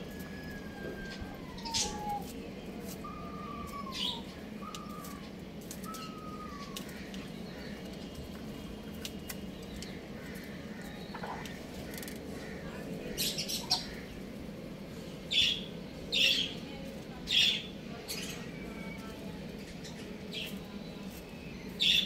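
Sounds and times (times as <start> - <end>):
young roosters calling: 0.0 - 7.9, 9.8 - 14.4.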